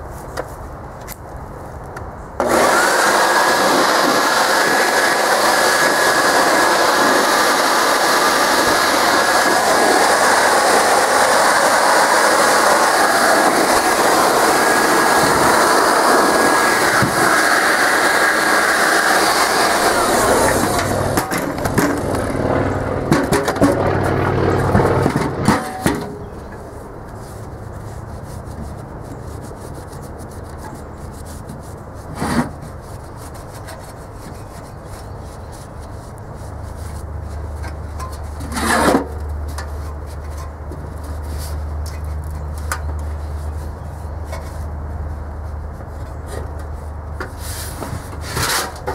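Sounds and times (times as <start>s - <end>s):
shop vacuum whining: 2.4s - 26.2s.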